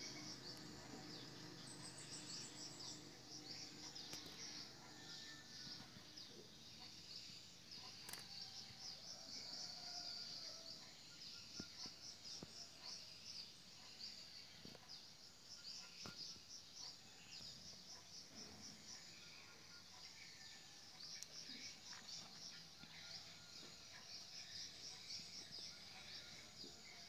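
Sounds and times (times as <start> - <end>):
insects chirping: 0.0 - 27.0.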